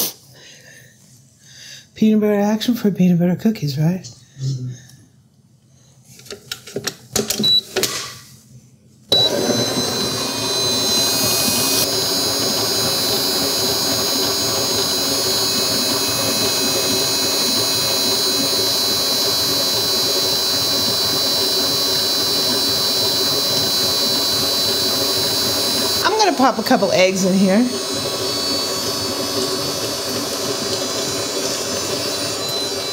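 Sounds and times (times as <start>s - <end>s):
stand mixer motor whining: 9.1s - 32.9s.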